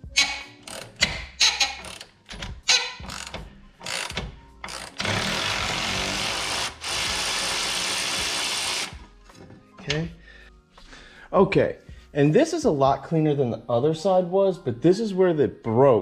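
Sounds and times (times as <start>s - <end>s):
ratchet wrench clicks: 0.2s - 5.5s
power wrench whirring: 0.2s - 9.0s.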